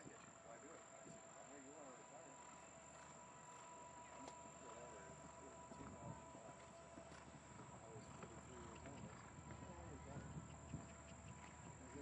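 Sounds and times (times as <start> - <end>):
faint distant voices: 0.0 - 12.0
steady high-pitched whine: 1.2 - 8.7.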